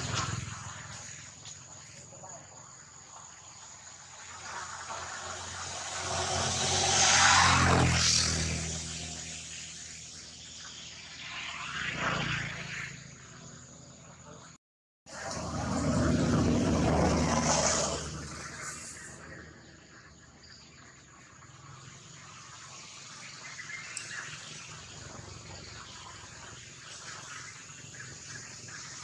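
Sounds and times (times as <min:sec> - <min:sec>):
motor vehicle passing: 0:04.1 - 0:14.4, 0:15.1 - 0:20.0.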